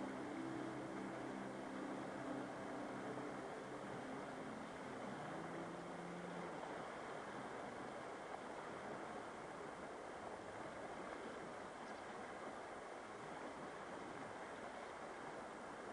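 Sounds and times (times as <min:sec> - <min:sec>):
faint low hum: 0:00.0 - 0:15.9
river water flowing over pebbles: 0:00.0 - 0:15.9.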